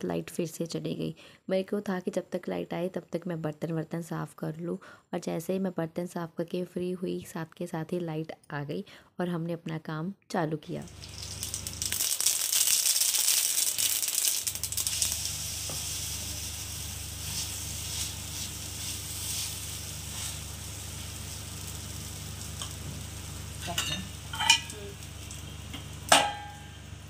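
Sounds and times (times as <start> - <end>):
oil sizzling in a pan: 10.9 - 27.0.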